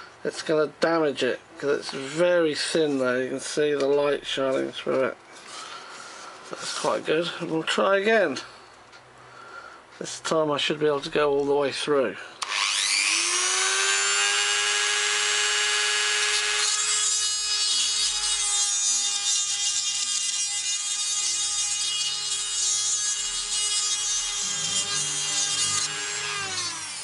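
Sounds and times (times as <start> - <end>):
drill bit cutting resin: 12.4 - 27.0
rotary tool whine: 12.4 - 27.0.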